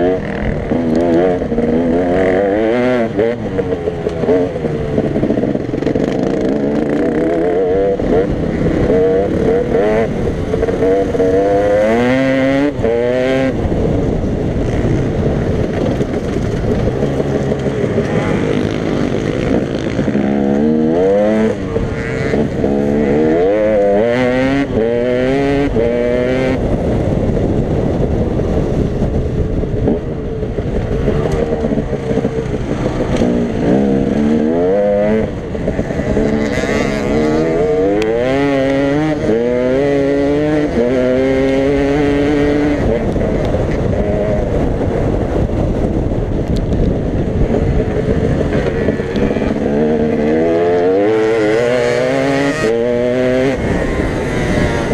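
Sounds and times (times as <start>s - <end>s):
dirt bike engine revving: 0.0s - 14.0s, 14.6s - 26.6s, 30.8s - 46.0s, 47.4s - 54.9s.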